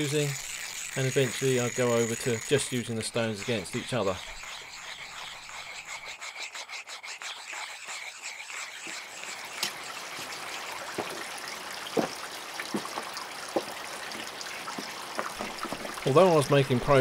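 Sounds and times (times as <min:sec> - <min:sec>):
water trickling over rocks: 0:00.0 - 0:17.0
water drip plopping: 0:09.5 - 0:17.0.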